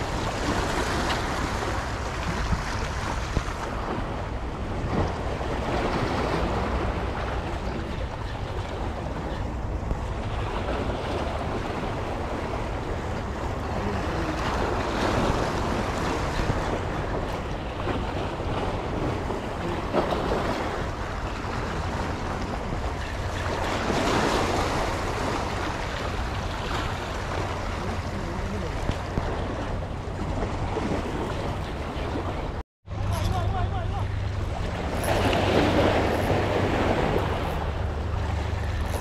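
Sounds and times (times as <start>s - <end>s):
sea waves washing in: 0.0s - 39.0s
wind rumbling on microphone: 0.0s - 39.0s.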